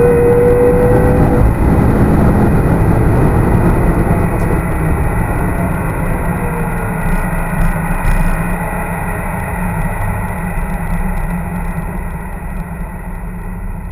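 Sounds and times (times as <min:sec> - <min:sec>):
car engine rumble: 0:00.0 - 0:13.9
road noise: 0:00.0 - 0:13.9.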